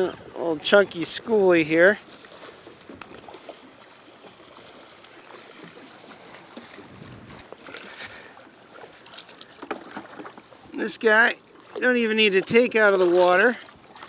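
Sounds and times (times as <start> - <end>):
water splashing against boat hull: 0.0 - 14.0.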